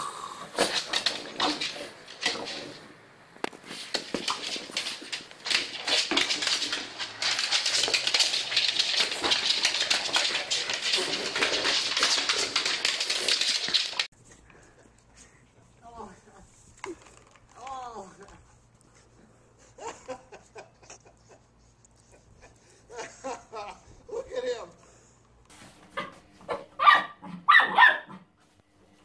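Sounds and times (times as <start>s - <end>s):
broom bristles scraping floor: 0.6s - 14.1s, 25.5s - 26.7s.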